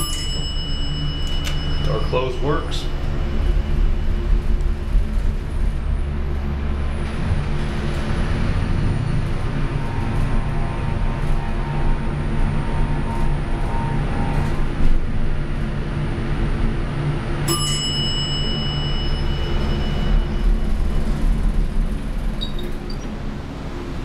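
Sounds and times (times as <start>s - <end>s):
elevator arrival bell ringing: 0.0s - 10.8s, 17.0s - 24.0s
elevator car humming: 0.0s - 24.0s.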